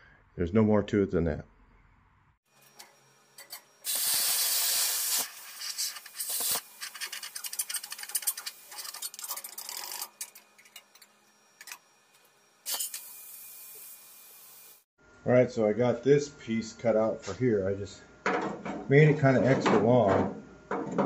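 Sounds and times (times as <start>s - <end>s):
plasma cutter hissing: 3.8s - 9.2s, 12.7s - 14.9s.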